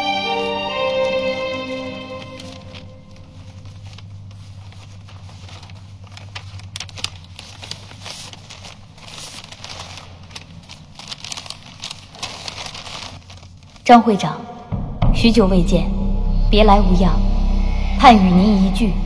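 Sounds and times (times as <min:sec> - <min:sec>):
paper rustling and crinkling: 0:02.2 - 0:13.9
faint low hum: 0:14.7 - 0:19.0.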